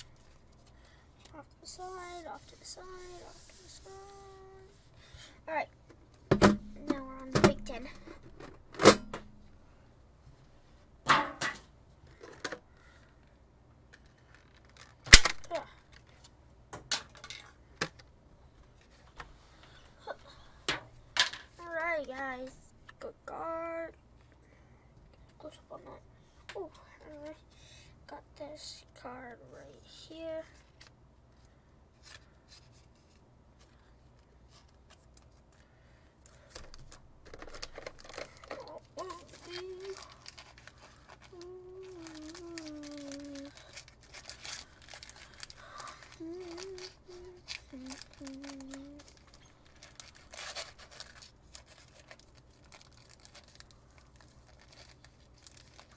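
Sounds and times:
plastic crinkling: 14.0s - 16.2s, 34.5s - 55.9s
plastic tray clicks and crackles: 36.6s - 38.7s.

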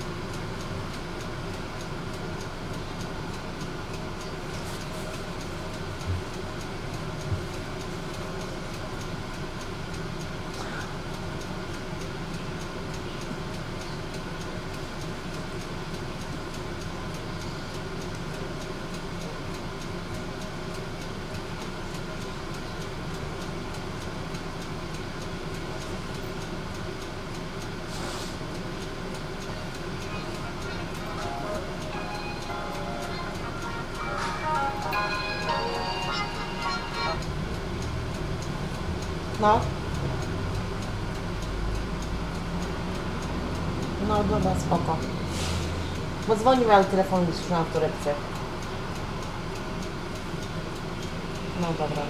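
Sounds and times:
tram running rumble: 0.0s - 52.0s.

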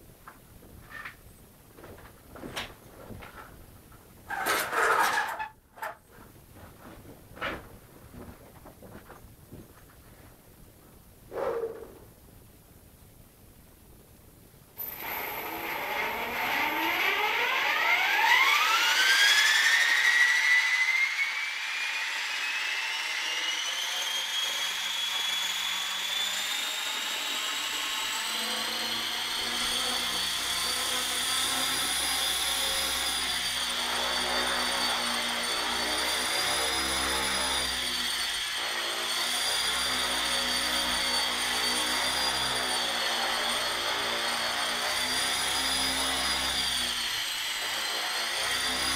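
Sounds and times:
electric motor whine: 14.8s - 48.9s.

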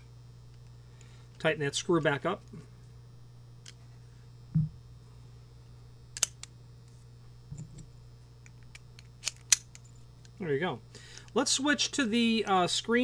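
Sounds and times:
low steady hum: 0.0s - 13.0s
dull thump: 4.5s - 4.8s
sharp metallic click: 6.2s - 6.5s.

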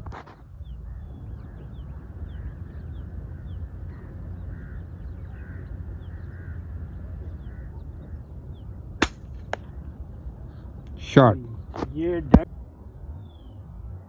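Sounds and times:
steady low rumble: 0.0s - 14.0s
faint bird chirping: 0.2s - 14.0s
air rifle shot crack: 9.0s - 9.8s.

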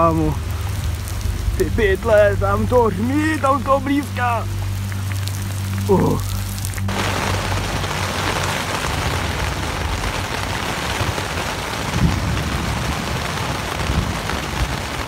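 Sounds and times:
heavy rain drumming on tent: 0.0s - 15.0s
wind shaking tent: 6.8s - 15.0s.

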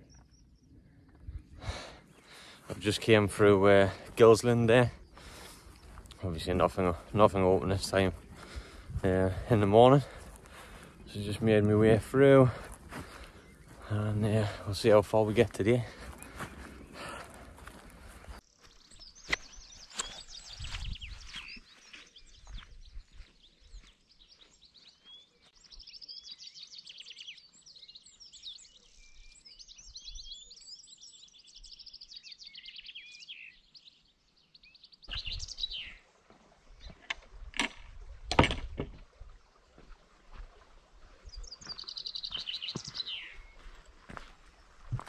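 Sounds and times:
songbirds twittering: 0.0s - 45.0s
sharp knocks: 37.6s - 39.0s.

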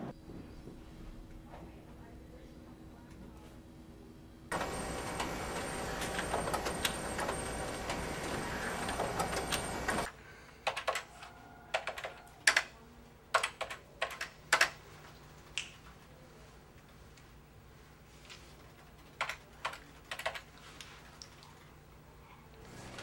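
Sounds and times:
typing on keyboard: 8.8s - 12.7s, 13.3s - 14.8s, 18.7s - 20.6s.

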